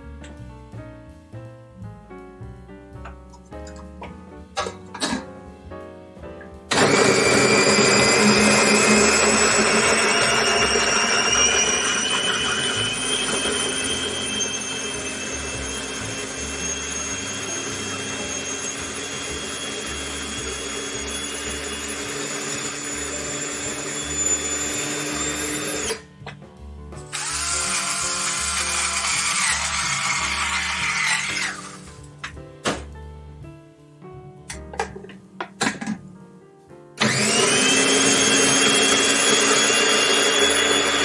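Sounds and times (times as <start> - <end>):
food processor motor whining: 6.7 - 26.0, 27.1 - 31.8, 37.0 - 41.0.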